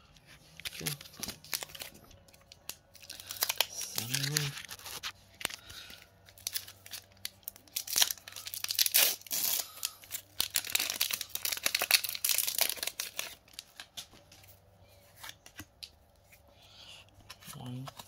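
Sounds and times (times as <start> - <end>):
foil wrapper crinkling and tearing: 0.5 - 14.1.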